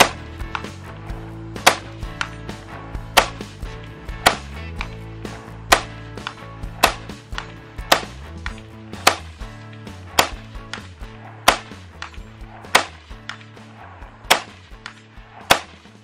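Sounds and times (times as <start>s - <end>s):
rifle shots: 1.6s - 2.4s, 3.1s - 3.4s, 4.2s - 4.5s, 5.7s - 8.2s, 9.0s - 9.4s, 10.1s - 15.9s.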